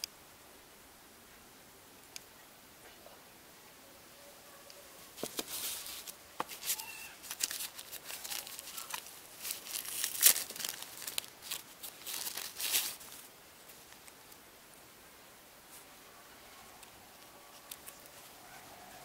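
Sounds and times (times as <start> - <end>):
paper rustling and crackling: 5.2 - 14.4, 16.8 - 18.7.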